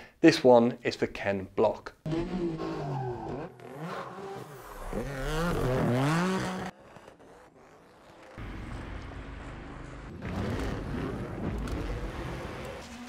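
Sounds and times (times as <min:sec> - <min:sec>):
engine and tyre rumble: 0:02.1 - 0:13.0
race car engine revving: 0:02.1 - 0:13.0.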